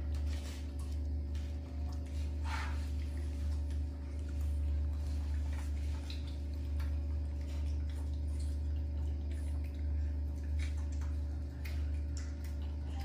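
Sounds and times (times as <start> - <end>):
steady low hum: 0.0 - 13.0
monkeys chewing wet clicks: 3.0 - 13.0.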